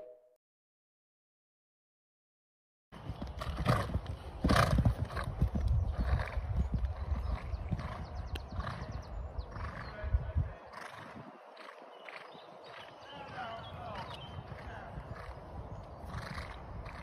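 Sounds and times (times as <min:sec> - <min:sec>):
hoofbeats on sand: 0:03.0 - 0:17.0
wind on microphone: 0:03.2 - 0:11.8, 0:12.4 - 0:17.0.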